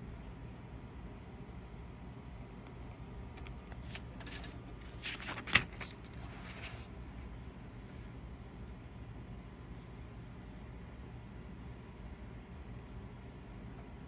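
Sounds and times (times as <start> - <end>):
notebook pages rustling: 3.4 - 7.3.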